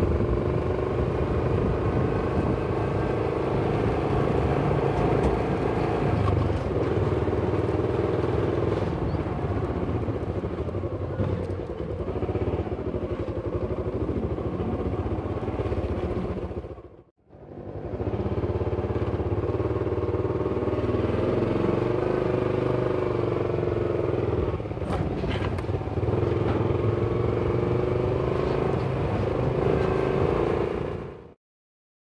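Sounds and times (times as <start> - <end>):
motorcycle engine running: 0.0 - 24.9.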